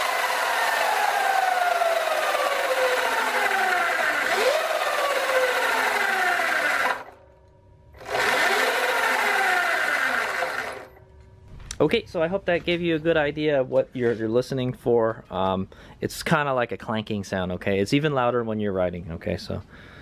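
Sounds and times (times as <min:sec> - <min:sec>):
electric motor whine: 0:00.0 - 0:07.2, 0:08.0 - 0:11.0.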